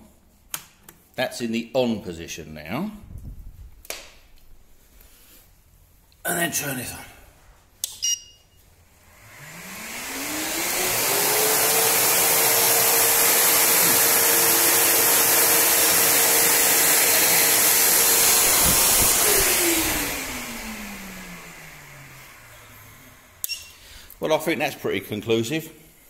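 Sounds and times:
vacuum cleaner motor running: 9.0s - 24.1s.

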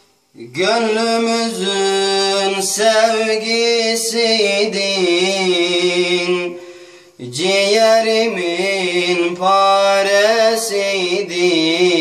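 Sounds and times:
man singing a lament: 0.4s - 12.0s.

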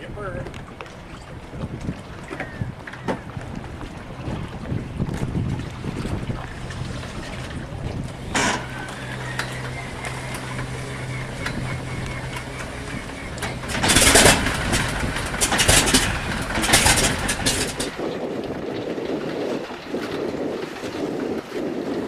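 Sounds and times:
wind on microphone: 0.0s - 22.0s
engine starter whining: 8.3s - 17.9s
aircraft engine firing unevenly: 8.3s - 18.0s.

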